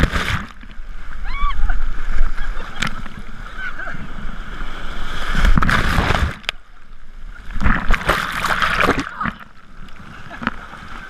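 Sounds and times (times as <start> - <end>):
ocean surf washing over microphone: 0.0 - 11.0.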